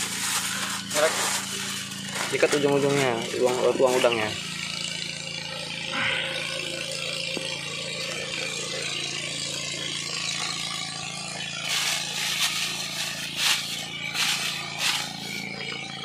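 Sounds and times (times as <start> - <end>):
low hum: 0.0 - 16.0.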